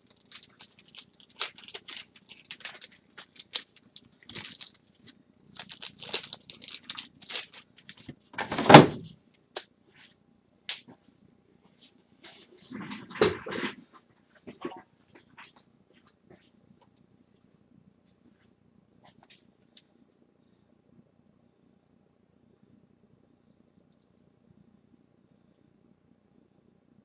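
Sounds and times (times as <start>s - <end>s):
plastic packaging crinkling: 0.0s - 8.6s
loud plastic rustle: 0.0s - 9.0s.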